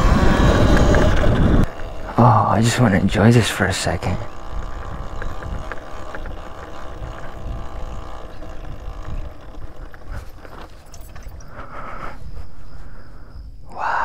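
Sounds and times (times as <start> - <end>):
electric motor whine: 0.0 - 13.2
wind rumble on microphone: 0.0 - 14.0.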